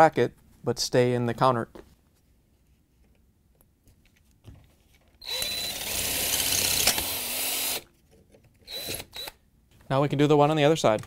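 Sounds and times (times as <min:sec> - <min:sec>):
cordless drill drilling metal: 0:05.2 - 0:07.8, 0:08.6 - 0:09.4.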